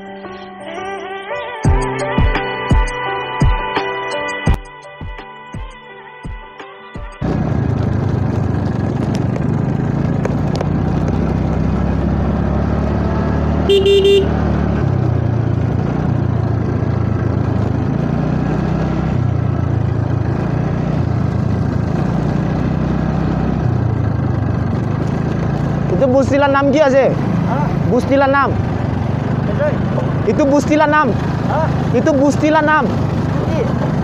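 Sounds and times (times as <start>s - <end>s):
motor scooter running: 7.2s - 34.0s
vehicle horn toot: 13.6s - 14.4s.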